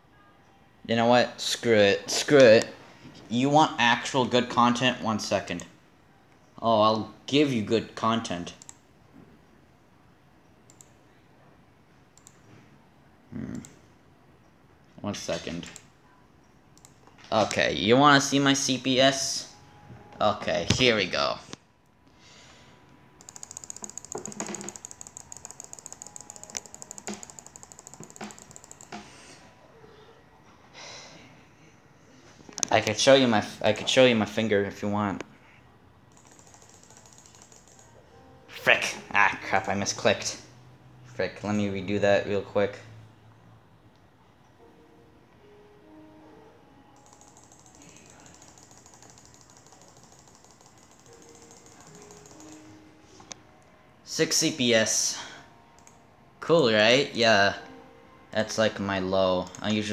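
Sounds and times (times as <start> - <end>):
rapid touchpad clicks: 23.2 - 29.1, 36.1 - 37.8, 47.0 - 52.6.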